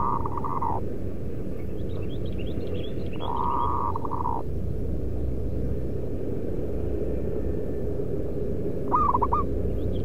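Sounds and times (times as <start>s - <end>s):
dove cooing: 0.0s - 0.8s, 3.2s - 4.5s, 8.8s - 9.6s
low rumble: 0.0s - 10.0s.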